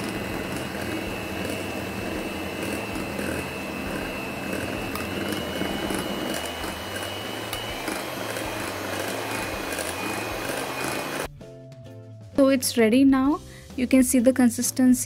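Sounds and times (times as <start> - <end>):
electric hand mixer whirring: 0.0 - 11.3.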